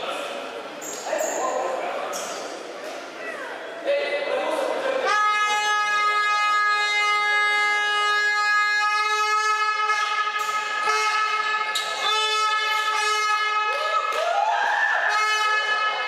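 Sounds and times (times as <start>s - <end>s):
horn long steady note: 5.0s - 13.8s, 15.0s - 16.0s.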